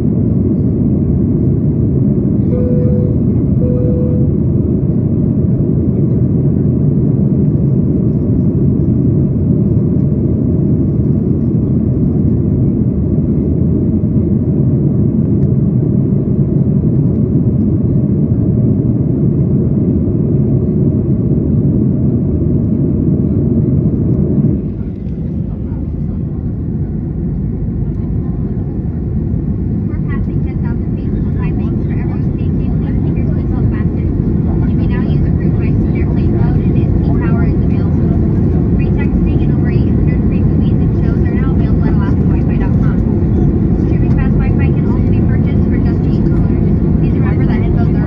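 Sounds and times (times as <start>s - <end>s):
jet engine cabin rumble: 0.0s - 48.0s
brief beep: 2.5s - 4.4s.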